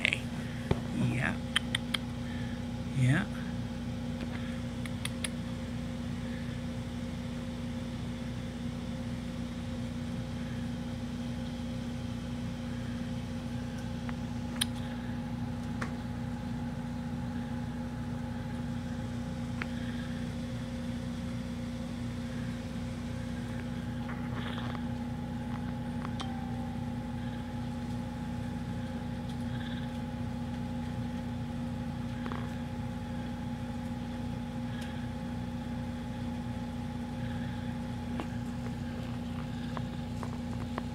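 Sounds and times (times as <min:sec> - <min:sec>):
kitten purring: 0:00.0 - 0:02.2, 0:23.4 - 0:26.0, 0:28.9 - 0:30.2, 0:37.2 - 0:40.9
steady hum: 0:00.0 - 0:40.9.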